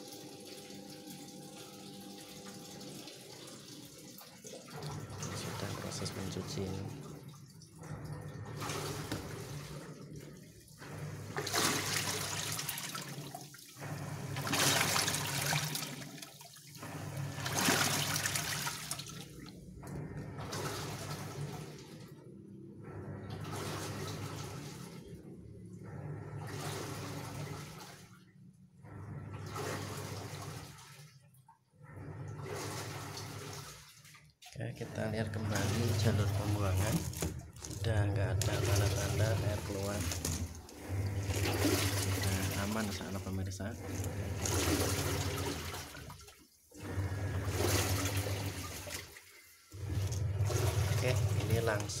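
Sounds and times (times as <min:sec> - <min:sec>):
washing machine churning water: 0:00.0 - 0:52.0.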